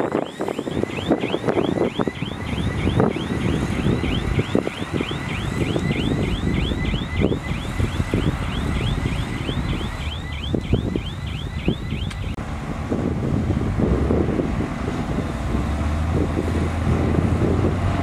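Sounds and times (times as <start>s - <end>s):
reverse alarm chirping: 0.0s - 12.4s
diesel engine rumble: 0.0s - 18.0s.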